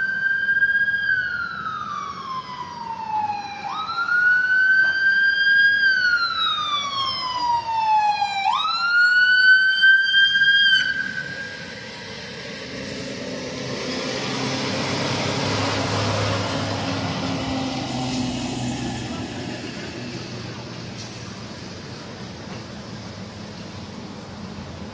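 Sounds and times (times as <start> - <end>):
emergency siren wailing: 0.0 - 20.9
low engine hum: 11.6 - 24.9.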